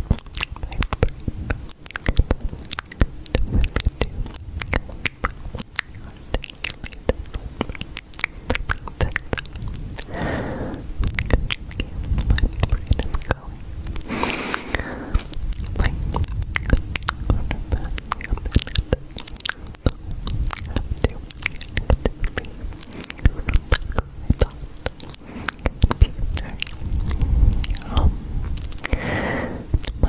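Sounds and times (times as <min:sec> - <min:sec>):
low rumble: 0:00.0 - 0:30.0
crisp crunching and snapping: 0:11.0 - 0:29.0.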